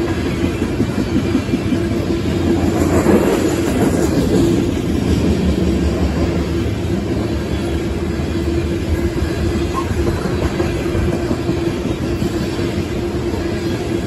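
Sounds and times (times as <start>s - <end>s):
train wheels rumbling on rail: 0.0s - 14.0s.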